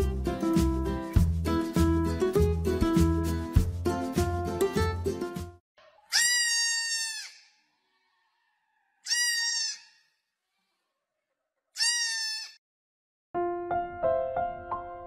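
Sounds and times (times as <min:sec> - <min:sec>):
goat kid bleating: 0:06.1 - 0:07.6, 0:08.4 - 0:10.0, 0:11.8 - 0:12.6.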